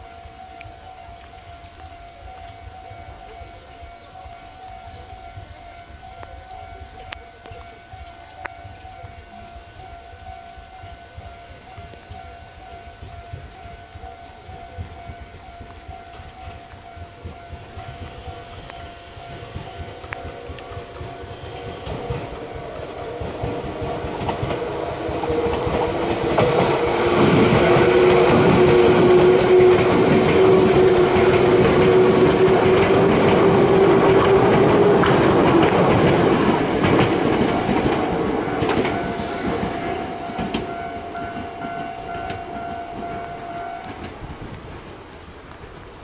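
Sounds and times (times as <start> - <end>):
train drone: 0.0 - 45.6
train wheels clacking: 12.9 - 44.2.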